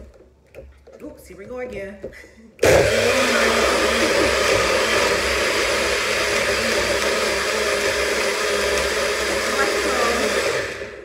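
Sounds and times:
blender motor whirring: 2.6s - 11.0s
ice blending in blender: 2.6s - 11.0s.

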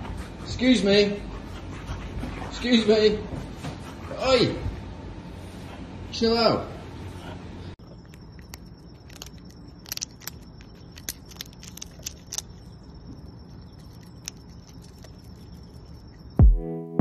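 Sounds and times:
animal chewing with crunching clicks: 7.8s - 16.4s.

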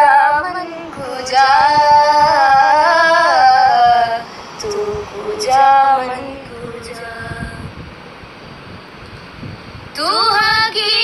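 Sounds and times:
woman singing: 0.0s - 7.7s, 10.0s - 11.0s.

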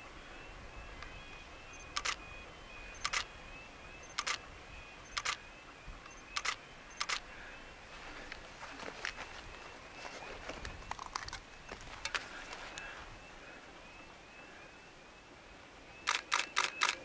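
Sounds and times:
camera shutter double clicks: 1.9s - 2.2s, 3.0s - 3.3s, 4.1s - 4.4s, 5.1s - 5.4s, 6.3s - 7.2s, 16.0s - 17.0s.

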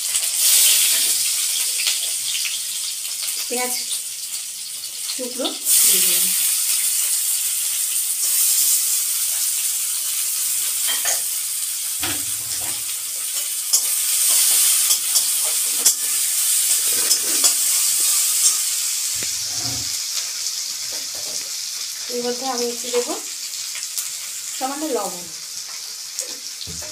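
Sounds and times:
onions sizzling in hot oil: 0.0s - 26.9s
metal spatula scraping a pan: 12.0s - 20.0s.

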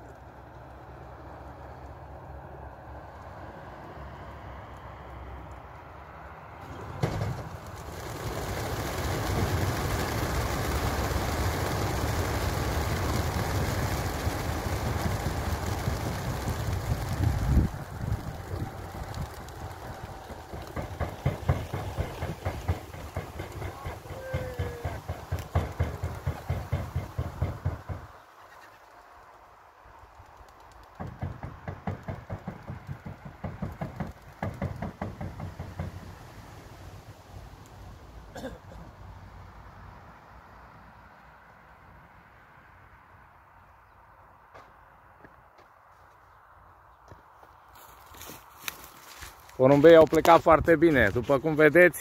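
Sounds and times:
flock of pigeons wings fluttering: 6.7s - 38.0s
rapid short knocks: 18.9s - 28.1s, 30.9s - 36.1s.

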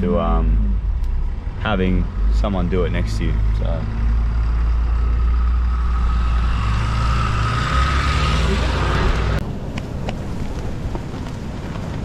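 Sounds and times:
car engine drone from inside: 0.0s - 9.4s.

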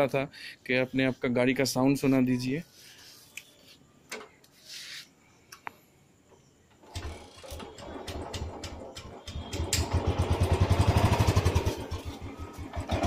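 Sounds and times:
motorcycle engine starting and running: 6.8s - 13.0s.

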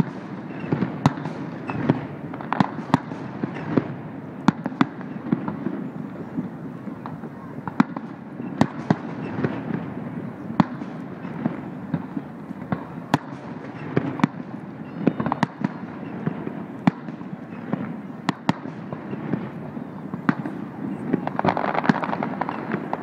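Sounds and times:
fireworks bursting: 0.0s - 23.0s
low background noise: 0.0s - 23.0s.

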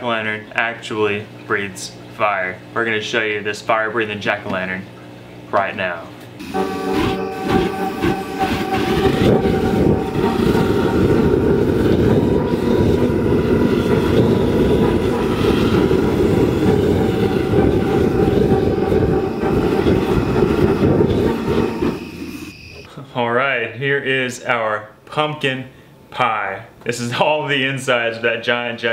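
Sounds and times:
flame jet roaring: 6.4s - 22.8s
faint steady tones: 6.4s - 22.9s.

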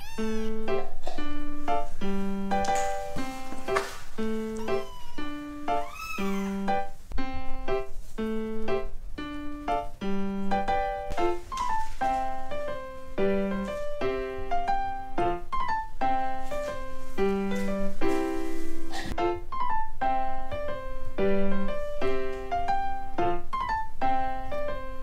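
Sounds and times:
gentle solo piano melody: 0.0s - 25.0s.

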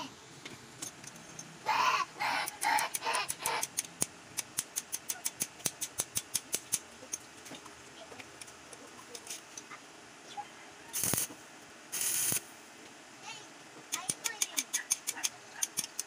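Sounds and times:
sharp metallic clamp clicks: 2.4s - 6.9s, 13.9s - 16.0s.

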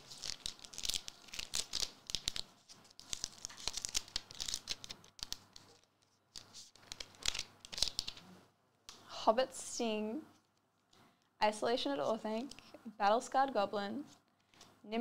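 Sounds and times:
foil wrapper ripping and crinkling: 0.0s - 8.2s.

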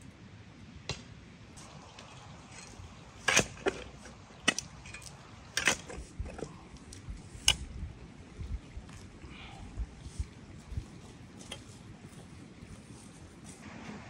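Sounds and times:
metal spade digging into soil: 2.4s - 6.5s, 7.4s - 7.7s.

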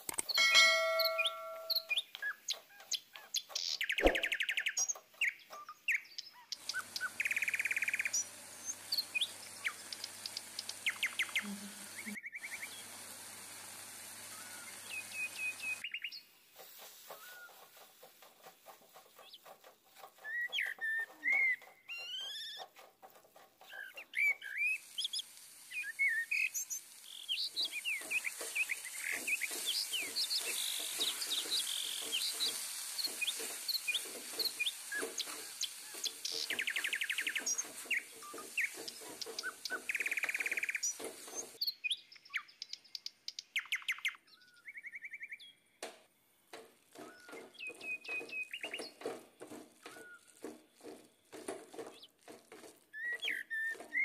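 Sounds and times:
steady high hiss: 0.0s - 2.1s, 6.7s - 18.6s, 23.7s - 41.6s
small birds chirping: 0.0s - 54.0s
spoon stirring in steel pan: 16.6s - 25.4s, 27.0s - 41.6s, 46.5s - 54.0s.

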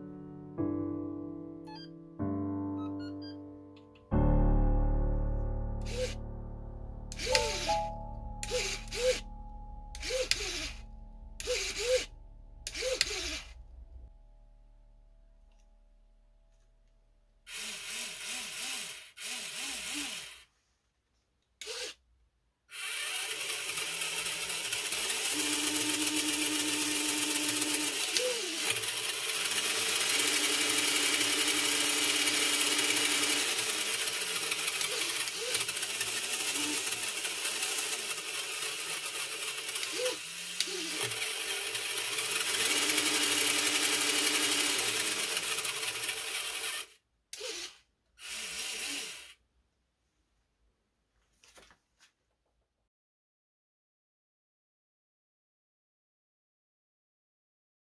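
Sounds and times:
electric motor whirring and whining: 5.8s - 6.2s, 7.1s - 9.2s, 10.0s - 10.8s, 11.4s - 12.1s, 12.7s - 13.6s, 17.5s - 20.4s, 22.7s - 49.4s.

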